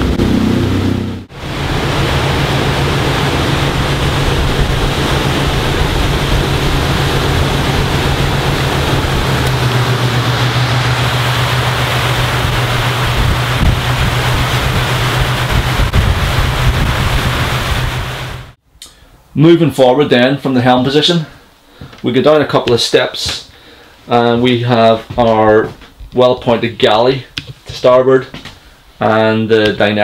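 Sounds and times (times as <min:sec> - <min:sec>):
boat engine drone: 0:00.0 - 0:18.6
rushing wind: 0:00.0 - 0:18.6
water rushing: 0:00.0 - 0:18.6.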